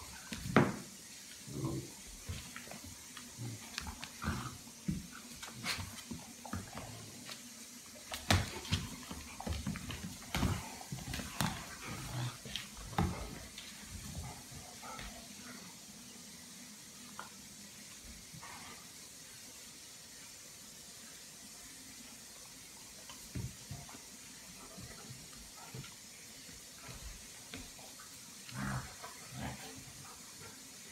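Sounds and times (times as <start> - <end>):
steady hiss: 0.0 - 30.9
dogs scuffling with thumps: 2.1 - 7.5, 8.1 - 15.2.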